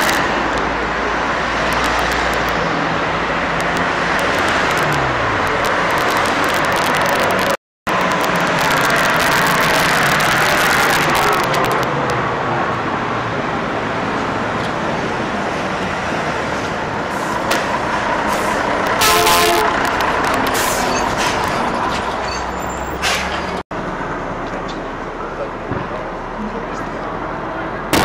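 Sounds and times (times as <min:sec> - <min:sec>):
street procession noise: 0:00.0 - 0:28.0
scattered clicks: 0:01.7 - 0:02.6, 0:03.6 - 0:12.2, 0:19.8 - 0:20.6
short horn toot: 0:19.0 - 0:19.8.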